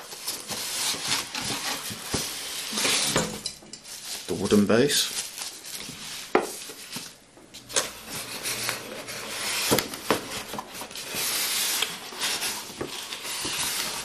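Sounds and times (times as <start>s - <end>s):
foam scraping inside cardboard box: 0.0s - 3.2s, 8.0s - 14.0s.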